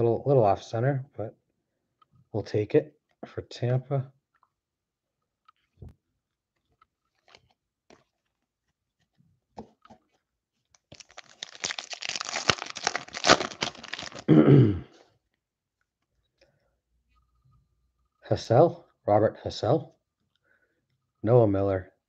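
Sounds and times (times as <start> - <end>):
foil wrapper crinkling and tearing: 7.1 - 8.2, 10.7 - 14.3.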